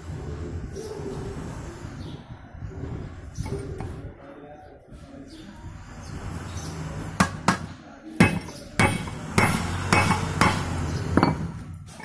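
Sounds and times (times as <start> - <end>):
hammer striking steel punch: 7.2 - 11.5.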